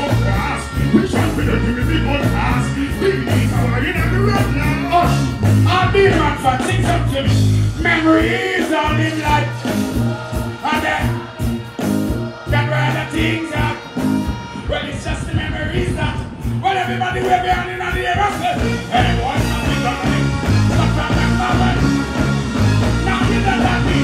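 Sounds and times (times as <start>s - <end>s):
drums: 0.0s - 24.0s
heavy bass line: 0.0s - 24.0s
vocalist on microphone: 0.0s - 24.0s.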